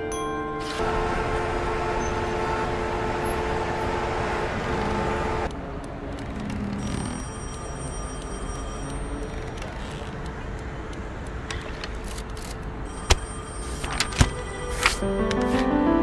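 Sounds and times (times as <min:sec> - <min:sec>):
faint high held tones: 0:00.0 - 0:05.5
held musical notes: 0:00.0 - 0:05.5, 0:13.0 - 0:16.0
steady rushing noise: 0:00.8 - 0:06.5.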